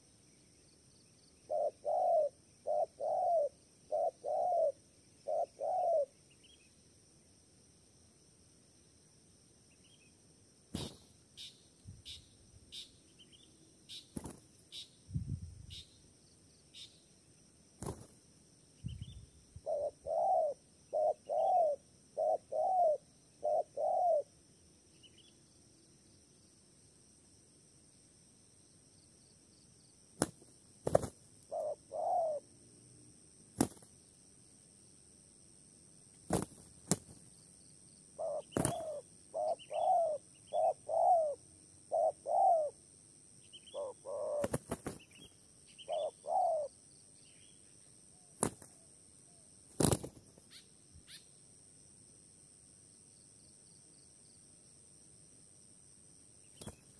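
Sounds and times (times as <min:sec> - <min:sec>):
doves cooing: 0:01.5 - 0:06.1, 0:19.6 - 0:24.3, 0:30.9 - 0:32.4, 0:38.2 - 0:42.8, 0:43.7 - 0:45.0, 0:45.8 - 0:46.7.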